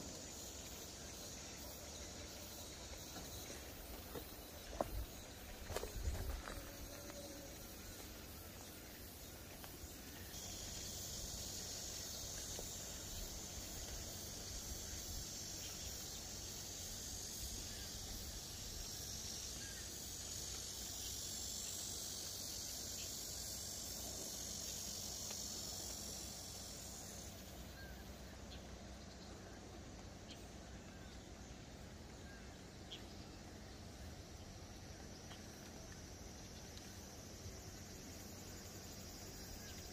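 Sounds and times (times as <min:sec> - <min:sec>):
insects buzzing: 0:00.0 - 0:39.9.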